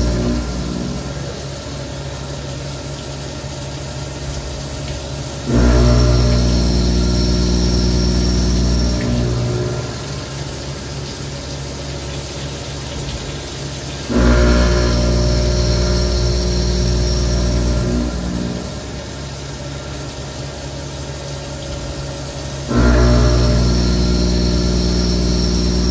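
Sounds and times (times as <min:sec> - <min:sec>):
milling machine humming: 0:00.0 - 0:25.9.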